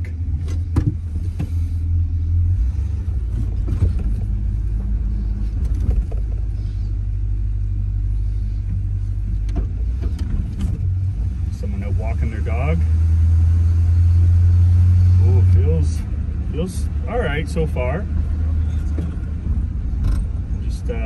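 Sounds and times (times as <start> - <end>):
pickup truck engine rumble: 0.0 - 21.0.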